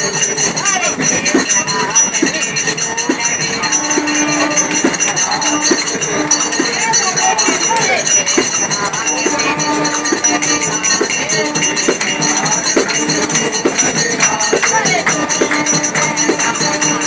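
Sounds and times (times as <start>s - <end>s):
hand-clapping: 0.0s - 17.0s
jingling hand percussion: 0.0s - 17.0s
men chanting together: 0.1s - 17.0s.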